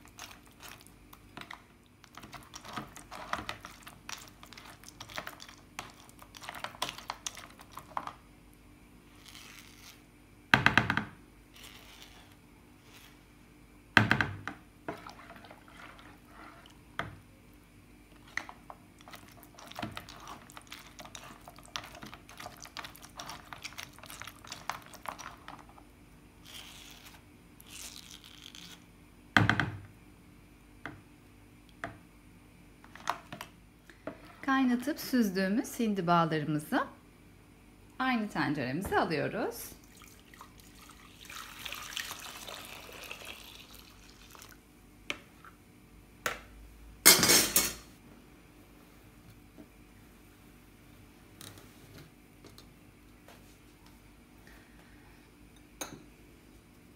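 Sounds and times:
spoon scraping a plastic sieve: 0:00.0 - 0:08.1, 0:09.1 - 0:10.0, 0:11.5 - 0:13.2.

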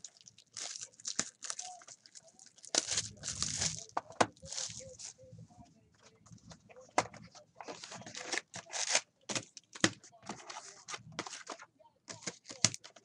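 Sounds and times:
foil packs crinkling: 0:00.0 - 0:05.2, 0:07.6 - 0:10.6.

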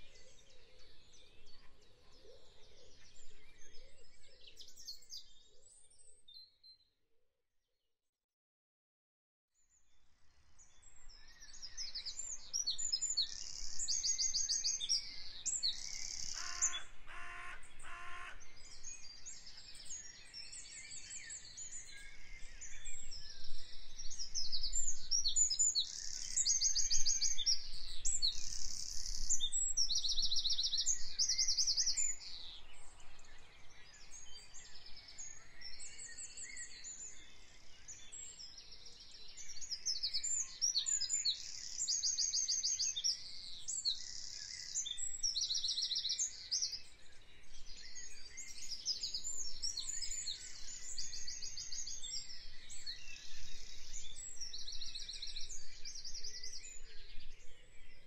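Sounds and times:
songbirds chirping and trilling: 0:00.0 - 0:06.8, 0:09.6 - 0:58.0
short low bird calls: 0:16.3 - 0:18.4.

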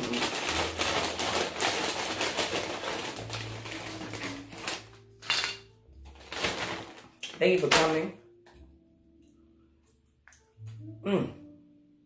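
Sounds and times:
plastic chip bag crinkling: 0:00.0 - 0:08.2.

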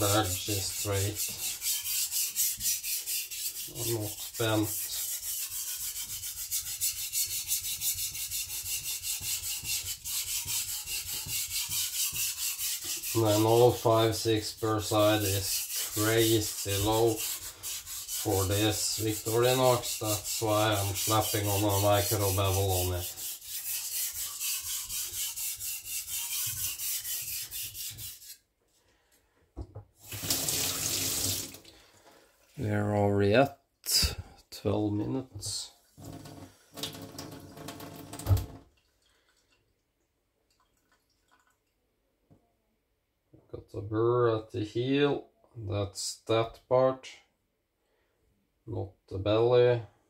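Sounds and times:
blade scraping on sharpening stone: 0:00.0 - 0:04.2, 0:15.2 - 0:28.4.

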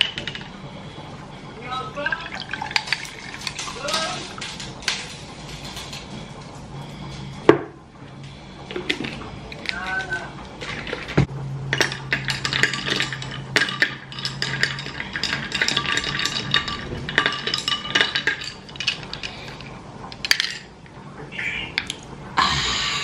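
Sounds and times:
low steady hum: 0:00.0 - 0:23.0
dishes and cutlery clinking: 0:02.3 - 0:06.2, 0:08.7 - 0:20.8.

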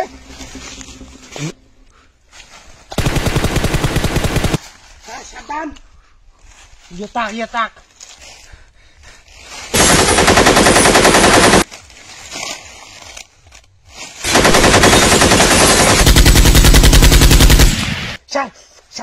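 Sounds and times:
machine-gun automatic fire: 0:03.0 - 0:04.6, 0:09.7 - 0:11.7, 0:14.3 - 0:18.2.

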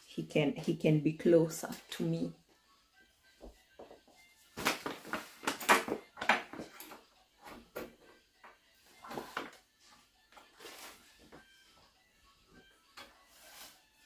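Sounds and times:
knocks of objects being handled: 0:03.4 - 0:09.6.

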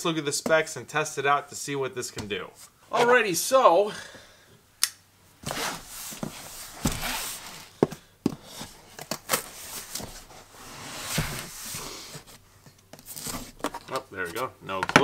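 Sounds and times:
scraping and rubbing: 0:05.4 - 0:07.8, 0:08.4 - 0:12.4.

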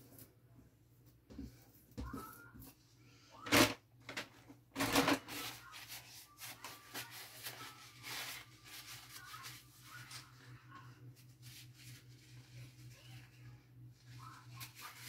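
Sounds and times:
paper towel rustling: 0:04.8 - 0:15.0.

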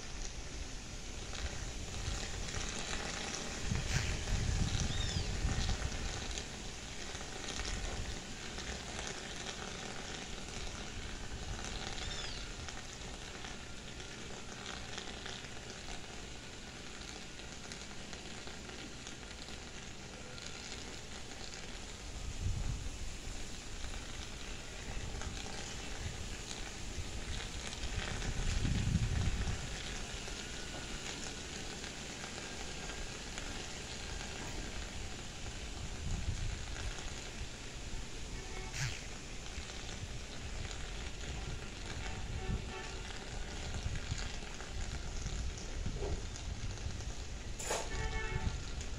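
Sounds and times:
wind hiss: 0:00.0 - 0:48.9
wind buffeting the microphone: 0:03.4 - 0:06.4, 0:22.1 - 0:23.5, 0:24.9 - 0:29.9, 0:35.0 - 0:37.0, 0:40.0 - 0:43.0, 0:43.6 - 0:48.9.

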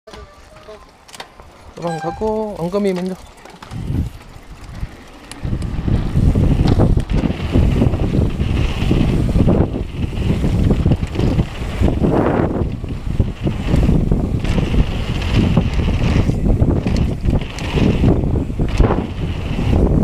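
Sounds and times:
bike rattling over ground: 0:00.1 - 0:20.0
wind buffeting microphone: 0:00.4 - 0:20.0.

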